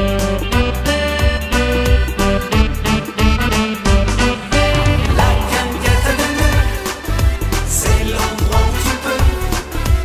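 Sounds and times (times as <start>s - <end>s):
accordion dance music: 0.0s - 10.0s
keyboard backing: 0.0s - 10.0s
drum kit beat: 2.8s - 8.8s.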